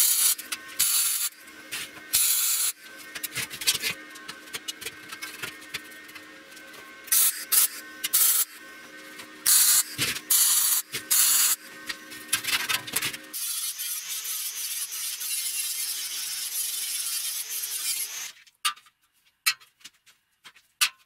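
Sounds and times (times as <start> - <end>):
arc welding crackling sizzle: 0.0 - 15.6
angle grinder on steel: 0.0 - 18.4.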